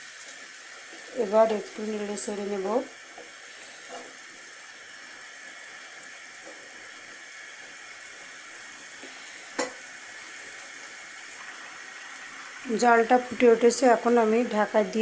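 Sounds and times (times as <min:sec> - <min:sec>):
curry bubbling and sizzling in pan: 0:00.0 - 0:15.0.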